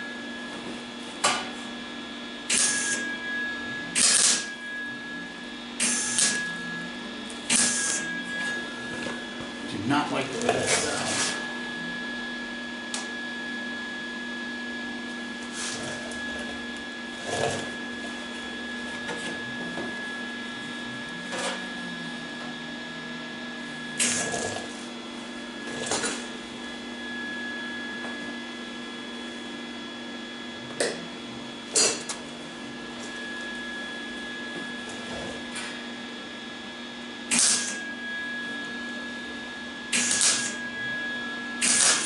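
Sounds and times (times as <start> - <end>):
electrical hum: 0.0 - 42.0
welding arc bursts: 2.5 - 3.0, 4.0 - 4.5, 7.5 - 8.0, 37.3 - 37.8, 40.0 - 40.6, 41.6 - 42.0.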